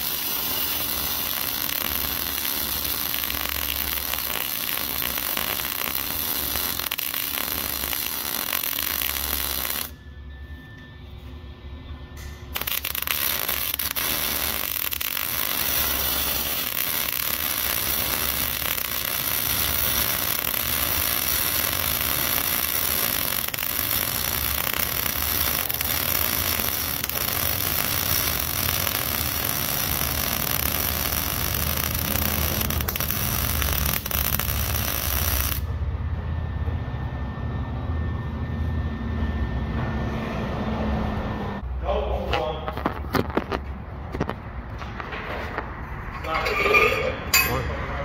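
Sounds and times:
welding arc crackling: 0:00.0 - 0:10.0, 0:12.3 - 0:35.8.

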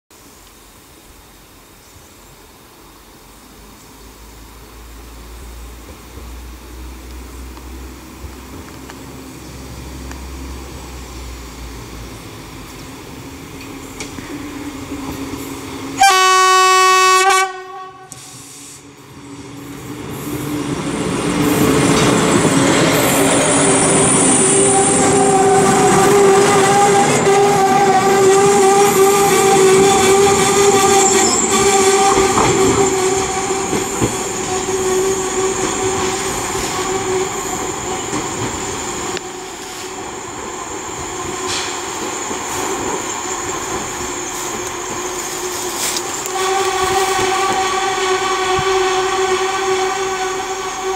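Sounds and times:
train engine running: 0:00.3 - 0:50.9
train horn blast: 0:16.0 - 0:18.5, 0:24.6 - 0:34.0, 0:45.4 - 0:50.9
wheels rolling on rails: 0:21.4 - 0:50.9.

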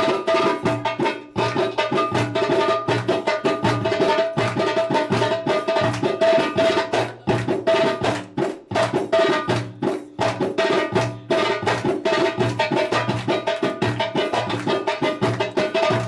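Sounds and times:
hand-drum strikes: 0:00.0 - 0:16.0.

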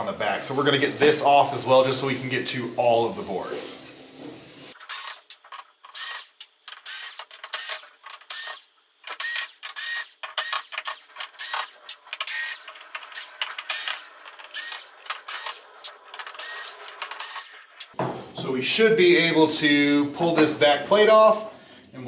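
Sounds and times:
cordless screwdriver whirring: 0:04.8 - 0:17.8.

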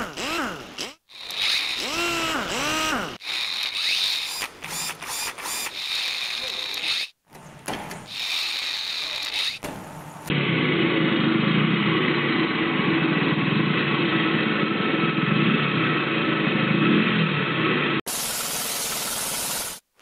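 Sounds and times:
quick whirs: 0:00.0 - 0:07.2, 0:08.1 - 0:09.6
mechanical ratcheting and clicking: 0:01.1 - 0:07.1.

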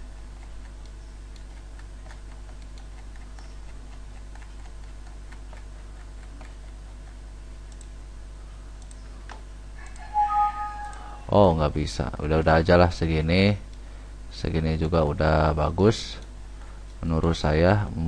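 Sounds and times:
steady low hum: 0:00.0 - 0:18.0
faint light clicks: 0:07.7 - 0:07.9.

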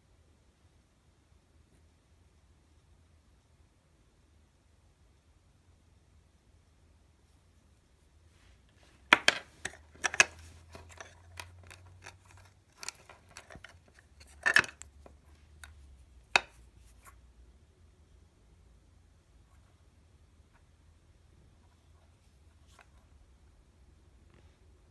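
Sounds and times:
plastic case clicking and clattering: 0:09.1 - 0:15.2.

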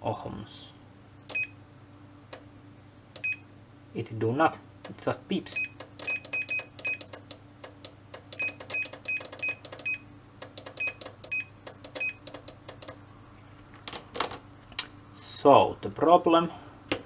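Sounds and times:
multimeter beeper chirps: 0:01.3 - 0:01.6, 0:03.2 - 0:03.5, 0:05.5 - 0:07.2, 0:08.3 - 0:12.5.

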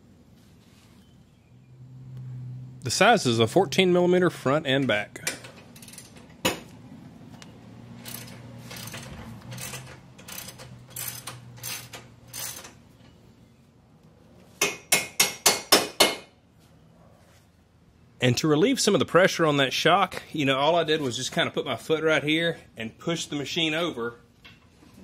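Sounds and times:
ratchet clicking: 0:05.3 - 0:06.3, 0:08.0 - 0:12.8.

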